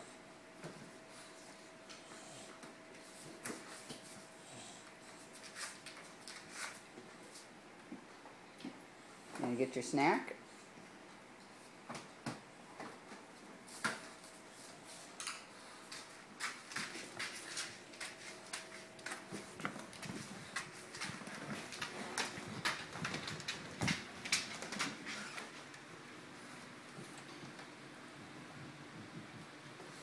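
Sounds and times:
dog claws clicking on hard floor: 15.2s - 25.5s.

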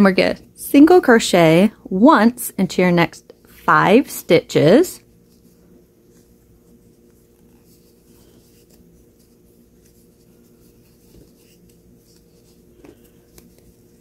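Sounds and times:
steady low hum: 0.0s - 14.0s
yarn rustling on crochet hook: 5.2s - 14.0s.

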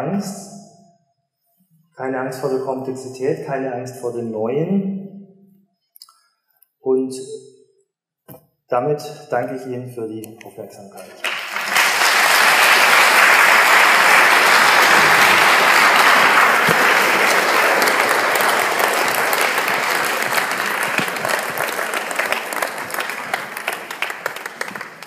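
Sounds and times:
audience applauding: 11.0s - 25.0s.

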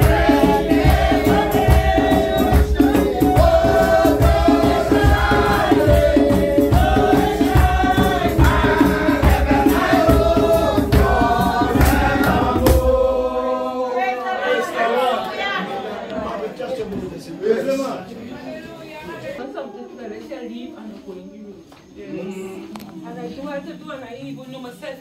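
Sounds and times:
steady low beat: 0.0s - 13.2s
congregation singing a hymn: 0.0s - 18.0s.

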